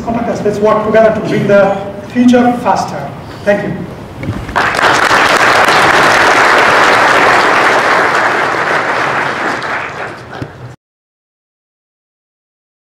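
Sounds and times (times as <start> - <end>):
audience applauding: 4.5 - 10.8.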